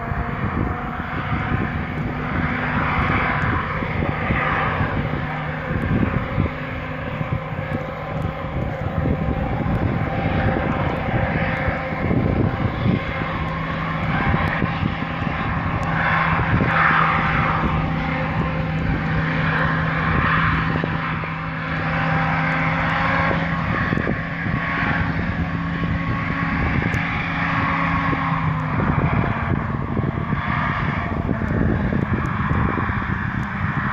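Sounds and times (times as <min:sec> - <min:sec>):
hovercraft engine droning: 0:00.0 - 0:33.9.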